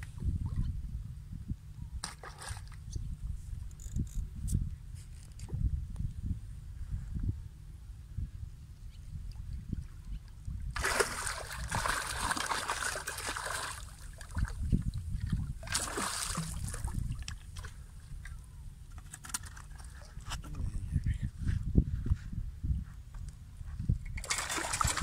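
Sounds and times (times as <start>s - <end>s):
fish splashing at water surface: 10.8s - 14.4s, 15.6s - 17.0s, 24.2s - 25.0s.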